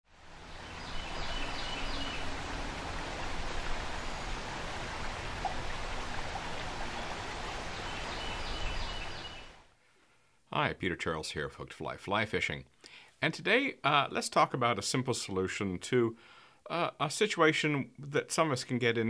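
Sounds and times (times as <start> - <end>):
stream rushing over rocks: 0.1 - 9.7.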